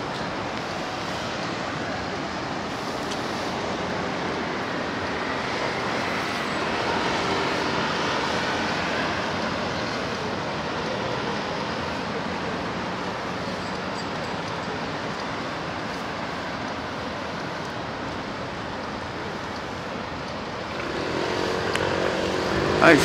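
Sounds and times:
city road traffic: 0:00.0 - 0:23.0
vehicle passing close by: 0:20.7 - 0:23.0.

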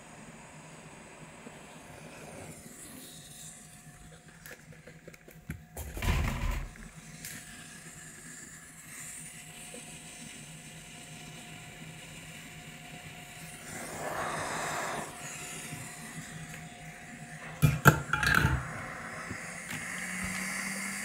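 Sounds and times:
hot air gun hissing: 0:13.4 - 0:21.0.

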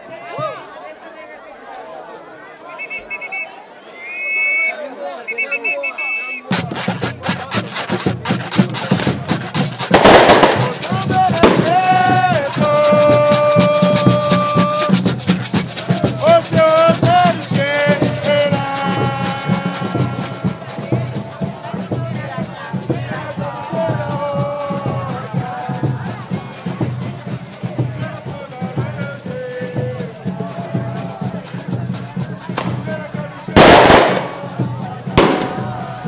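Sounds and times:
drums: 0:06.4 - 0:36.0
wooden scrapers rasping: 0:06.6 - 0:09.9
person singing long notes: 0:10.8 - 0:15.1, 0:16.0 - 0:21.4.

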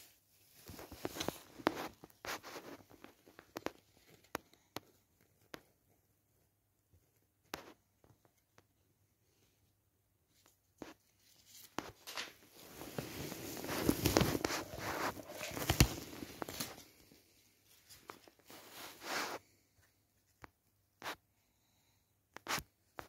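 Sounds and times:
paper rustling and crinkling: 0:00.0 - 0:04.6, 0:10.3 - 0:19.6.

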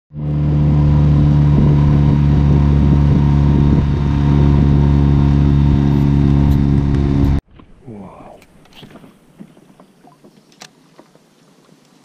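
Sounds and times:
outboard motor running: 0:00.1 - 0:07.4.

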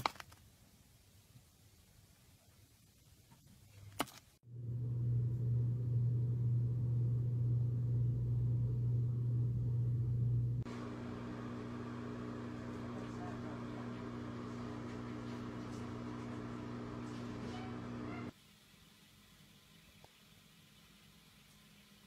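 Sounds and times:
low mechanical hum: 0:04.4 - 0:18.3.

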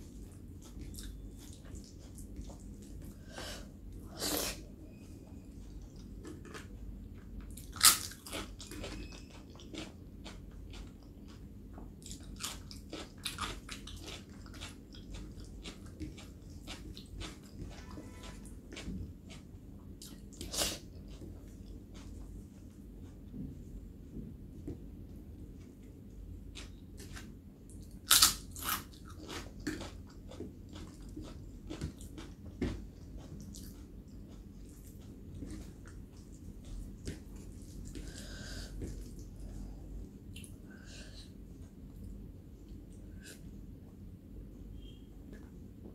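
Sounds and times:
chewing with crunches: 0:00.0 - 0:03.2, 0:04.0 - 0:23.4, 0:25.6 - 0:40.6
crunchy bite: 0:28.0 - 0:29.9.

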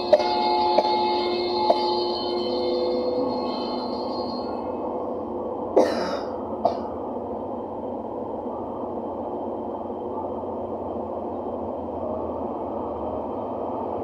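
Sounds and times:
low rushing background noise: 0:00.0 - 0:14.0
person coughing: 0:05.8 - 0:06.9.

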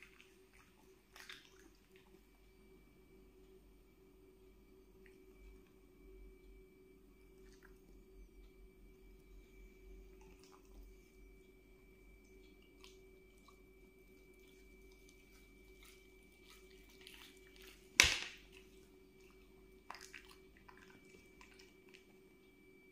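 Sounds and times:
dog chewing: 0:12.2 - 0:22.2.

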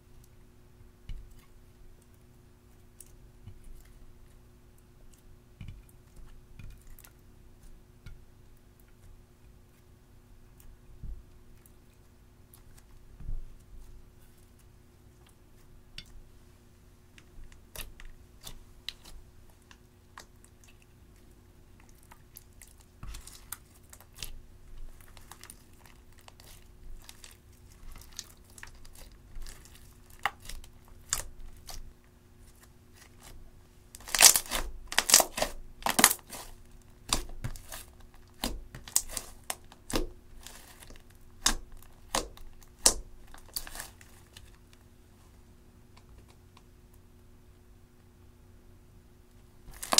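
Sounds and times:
slime crackling and popping: 0:21.8 - 0:31.9, 0:34.0 - 0:44.6.

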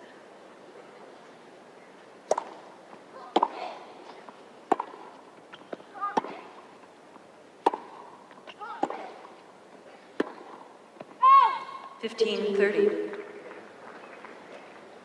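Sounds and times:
racket striking tennis ball: 0:02.3 - 0:02.6, 0:03.3 - 0:03.8, 0:04.7 - 0:06.6, 0:07.6 - 0:09.4, 0:10.1 - 0:10.7.

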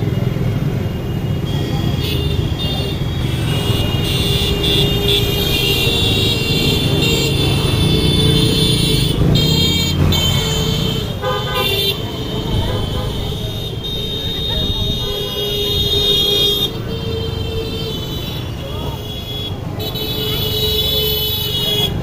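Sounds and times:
motorcycles riding past: 0:03.2 - 0:14.7.

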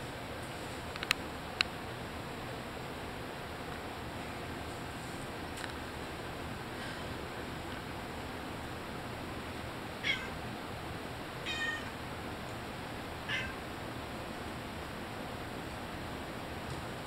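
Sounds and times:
cat meowing: 0:10.0 - 0:10.4, 0:11.4 - 0:12.0, 0:13.3 - 0:13.6.

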